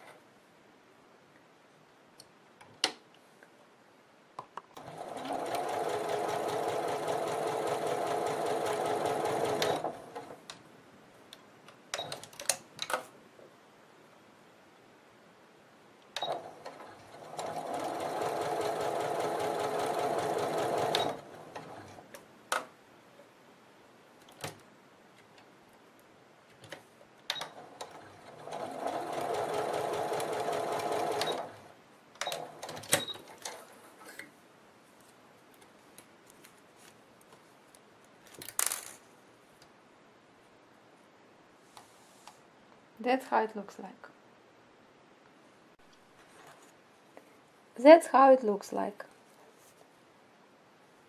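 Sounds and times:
electric sewing machine running: 4.8s - 10.2s, 17.1s - 21.8s, 28.0s - 31.6s
handling noises: 32.6s - 39.2s.

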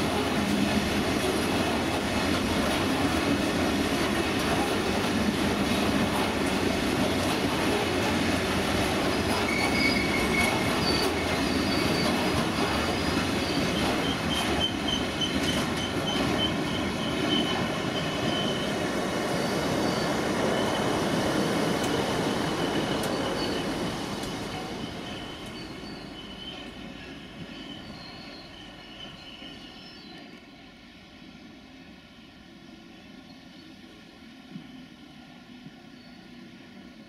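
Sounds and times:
train wheels rumbling on rails: 0.0s - 37.0s
high wheel squeal: 9.0s - 30.3s.

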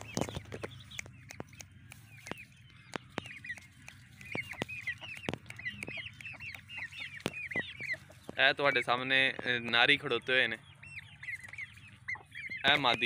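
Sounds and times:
sharp clicks: 0.0s - 8.4s
chicks peeping: 0.0s - 13.0s.

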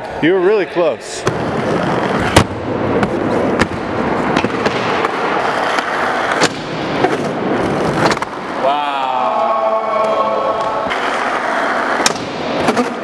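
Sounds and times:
skateboard rolling on concrete: 1.2s - 8.6s, 10.4s - 13.0s.

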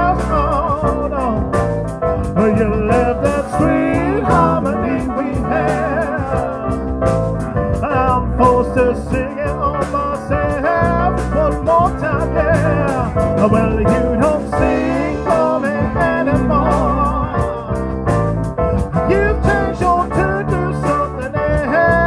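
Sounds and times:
drum kit beat: 0.0s - 22.0s
live band playing: 0.0s - 22.0s.

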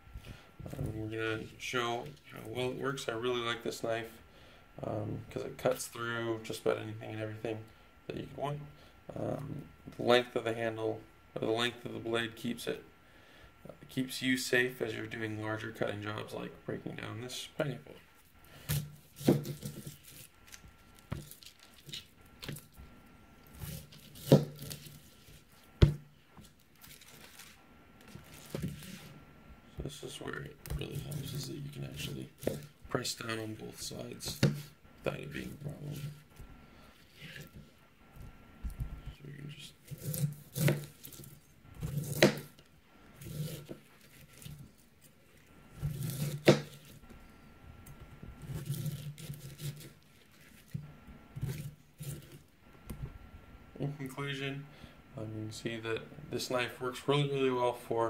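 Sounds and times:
knife crunching and scraping rind: 39.8s - 42.6s, 43.2s - 44.8s, 45.8s - 47.0s, 48.4s - 50.8s.

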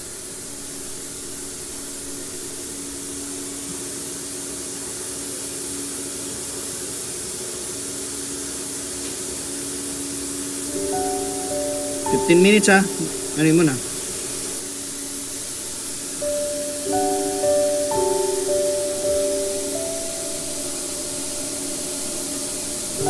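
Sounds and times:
faint hum: 10.7s - 23.0s
rushing air hiss: 10.7s - 23.0s.

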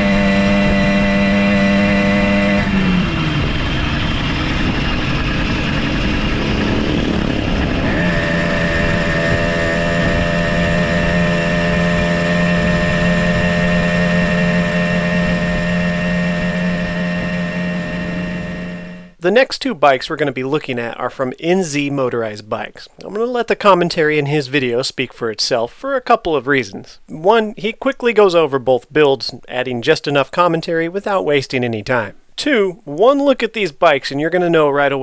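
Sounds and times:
two-stroke engine running: 0.0s - 19.2s.

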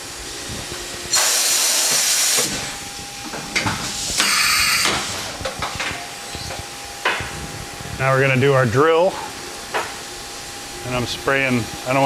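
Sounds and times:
faint machine whine: 0.0s - 12.0s
hissing coolant spray: 1.1s - 2.8s.

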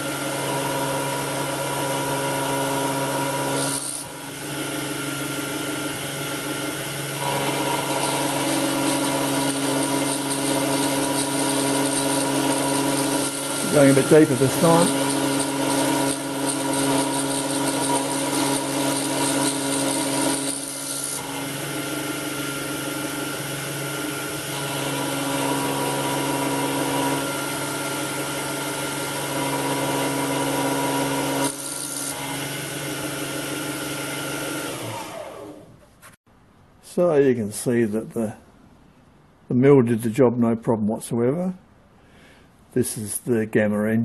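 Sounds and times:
spindle motor whine: 0.0s - 35.7s
end mill cutting brass hiss: 7.2s - 21.2s.

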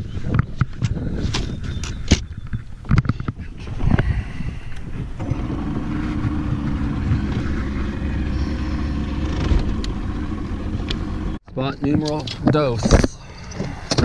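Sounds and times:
outboard motor droning: 5.2s - 11.4s.

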